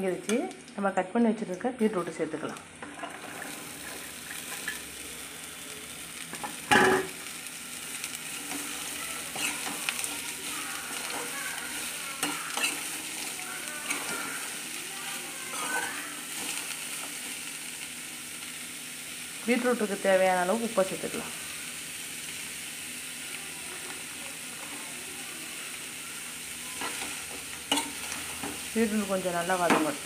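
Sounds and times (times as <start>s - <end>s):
vegetables sizzling in hot oil: 0.0s - 30.0s
clank of metal on metal: 6.7s - 7.1s
steel spoon scraping a pan: 8.4s - 10.3s, 10.9s - 14.4s, 15.5s - 16.6s, 26.7s - 28.6s.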